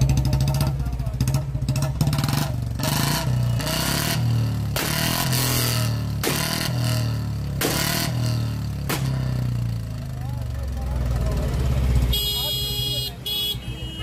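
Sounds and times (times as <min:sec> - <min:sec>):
motorcycle engine revving: 0:00.0 - 0:13.0
exhaust backfire bangs: 0:01.2 - 0:09.8.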